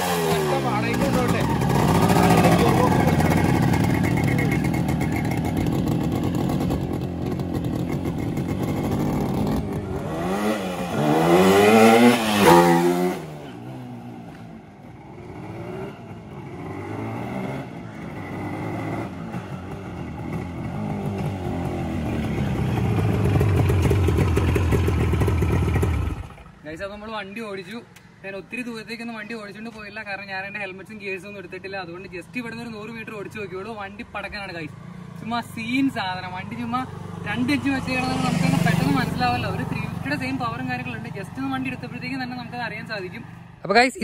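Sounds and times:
motorcycle engine revving: 0.0s - 26.6s, 34.7s - 43.2s.

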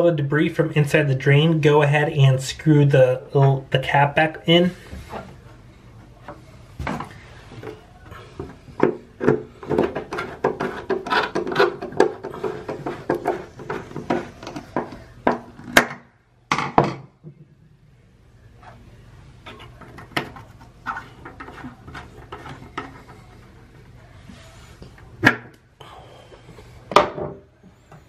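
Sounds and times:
screwdriver clicking and scraping: 9.6s - 14.7s.

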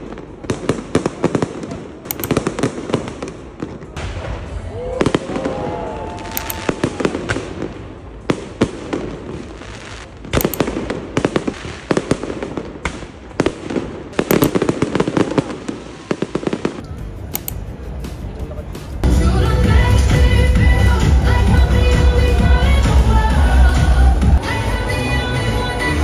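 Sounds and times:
fireworks bangs and crackles: 0.0s - 16.9s.

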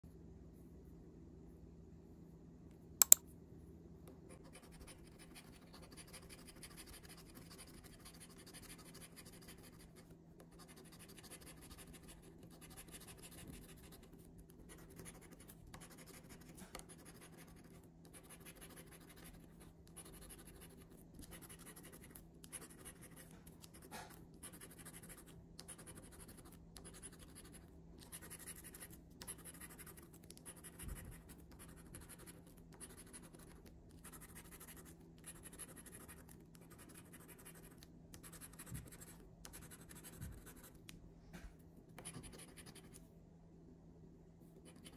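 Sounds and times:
sharp click: 3.0s - 3.2s.

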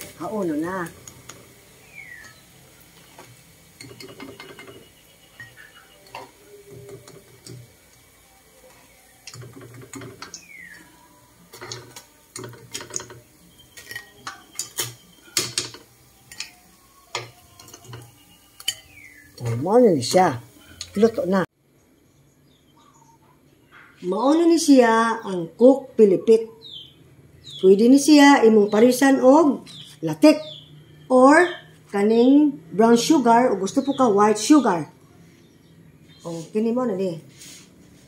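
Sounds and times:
oil sizzling: 0.0s - 21.5s
metal tongs clicking against wok: 13.8s - 18.0s, 18.6s - 19.5s.

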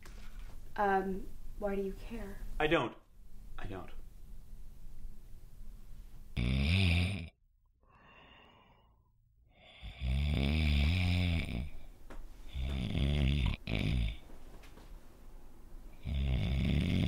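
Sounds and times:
person snoring loudly: 6.4s - 7.4s, 9.5s - 11.9s, 12.5s - 14.2s, 16.0s - 17.0s.

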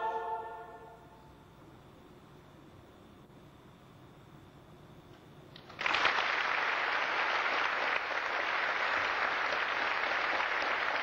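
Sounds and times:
audience applause: 5.6s - 11.0s.

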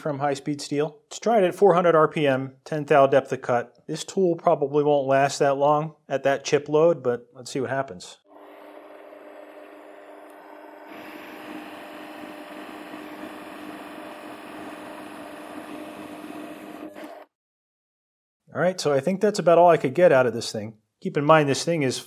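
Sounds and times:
lathe motor whine with cutting: 8.3s - 17.3s.

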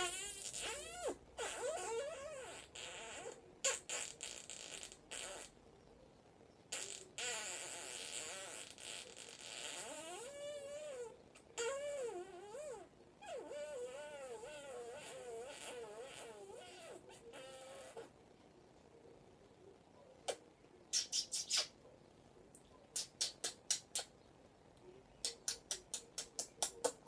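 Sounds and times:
kissing smacks and lip noises: 20.2s - 21.8s, 22.6s - 24.1s, 25.2s - 27.0s.

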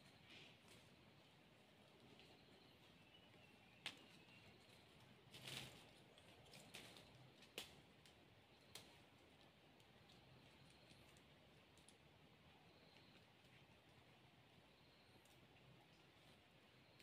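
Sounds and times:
faint clicks of sticks and leaves: 0.0s - 17.0s.

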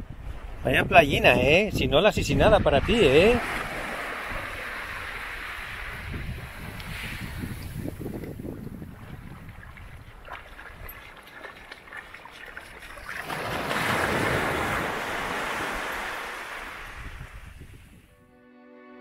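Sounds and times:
wind on microphone: 0.0s - 11.7s, 12.6s - 18.2s
sea waves breaking on sand: 2.8s - 17.9s.

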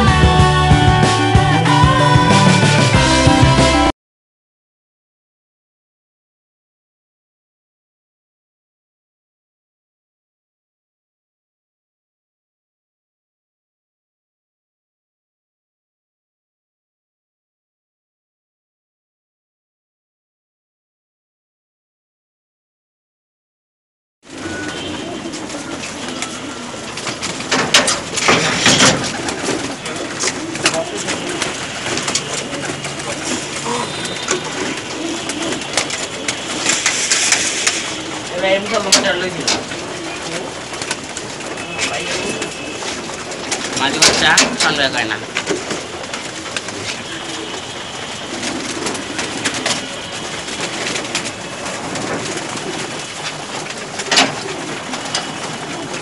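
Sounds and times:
pigeons cooing: 24.3s - 56.0s
wing flaps and scuffling: 24.3s - 56.0s.

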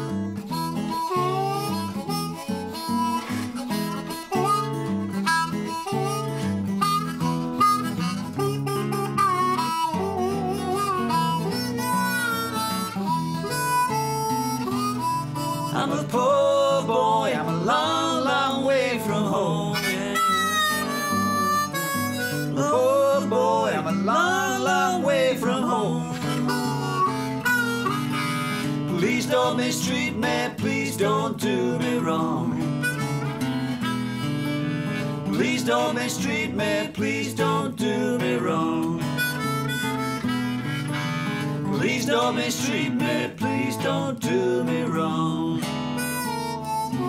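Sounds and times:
acoustic guitar: 0.0s - 47.0s
harmonica solo: 0.0s - 47.0s
wordless vocal hollers: 9.5s - 40.2s, 41.0s - 47.0s.

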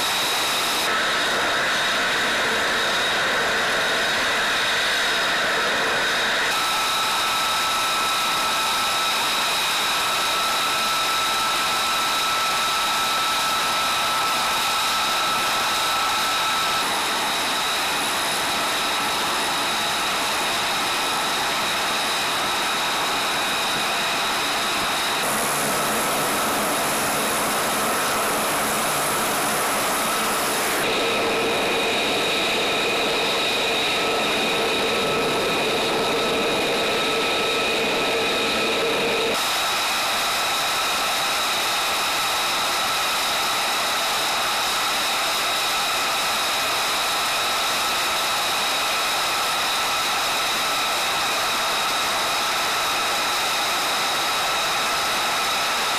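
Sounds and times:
aircraft turbine engines idling: 0.0s - 55.9s.

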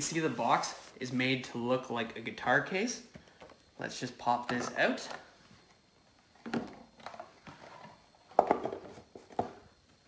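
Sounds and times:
soft rustling and scraping: 0.0s - 1.4s.

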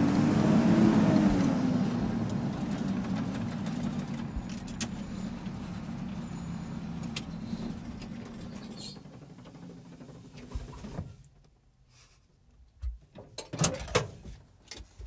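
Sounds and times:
vehicle engine droning: 0.0s - 10.3s.

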